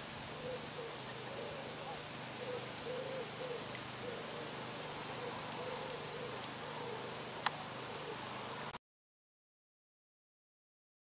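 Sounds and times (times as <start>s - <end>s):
soft low hooting bird calls: 0.0s - 8.8s.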